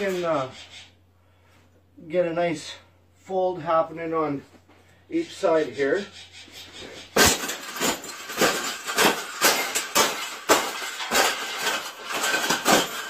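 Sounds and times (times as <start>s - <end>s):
wire cage clanking under jumps: 6.7s - 13.0s.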